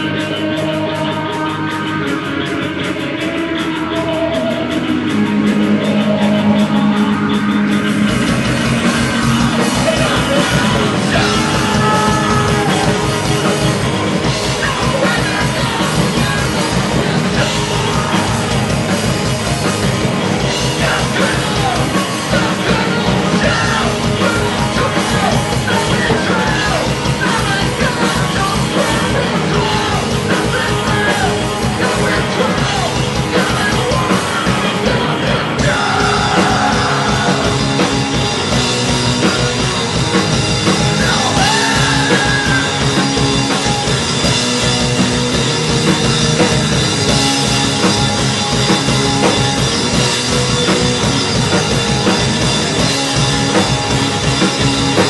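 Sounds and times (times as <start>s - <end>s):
rock band playing: 0.0s - 55.0s
singer yelling into a microphone: 9.7s - 13.4s, 20.7s - 37.7s, 40.8s - 44.0s.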